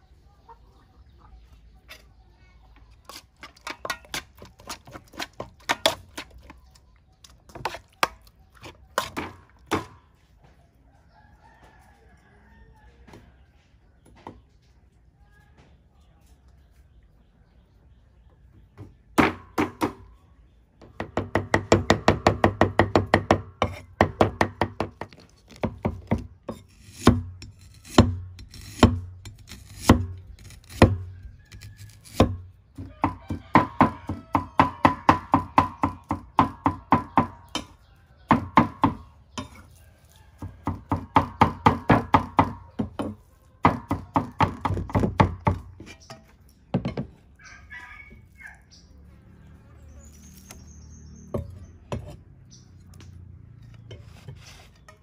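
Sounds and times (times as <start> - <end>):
cleaver chopping on wooden block: 20.9 - 37.7, 38.3 - 39.1, 40.6 - 46.0.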